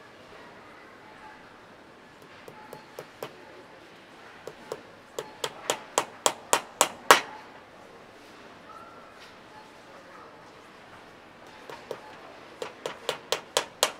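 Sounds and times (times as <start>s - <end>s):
hammer tapping a shoe: 2.2s - 3.4s, 4.5s - 7.3s, 11.5s - 13.9s.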